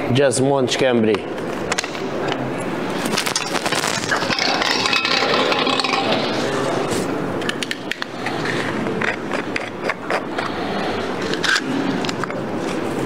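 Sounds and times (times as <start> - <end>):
room noise murmur: 0.9 - 13.0
sharp clicks and rattles: 3.0 - 6.8.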